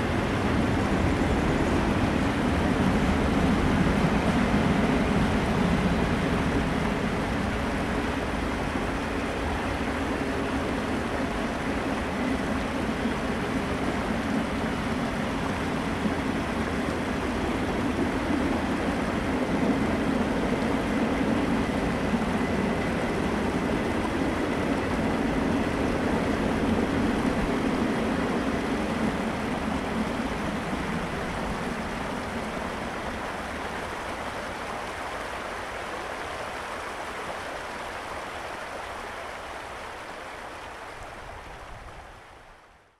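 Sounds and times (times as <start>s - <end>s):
train wheels rumbling on rail: 0.0s - 42.4s
creek water rushing: 0.0s - 42.9s.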